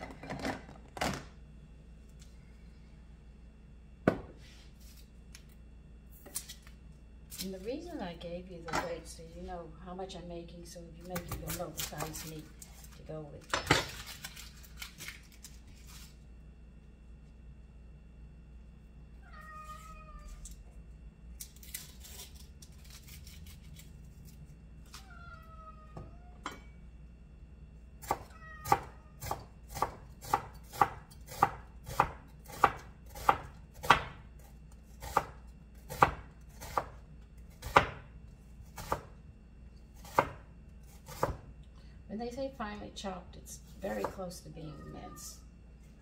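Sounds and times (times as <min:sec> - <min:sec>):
knife chopping on wooden board: 0:28.0 - 0:34.2, 0:35.0 - 0:37.0, 0:37.6 - 0:38.0, 0:40.0 - 0:40.4, 0:41.0 - 0:41.4.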